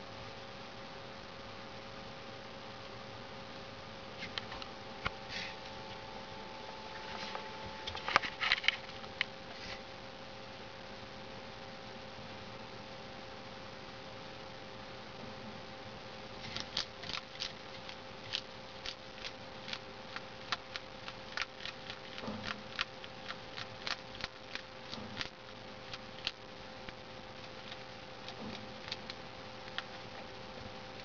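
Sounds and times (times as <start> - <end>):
faint steady hum: 0.0 - 31.0
lizard chewing crunchy worm: 16.3 - 31.0.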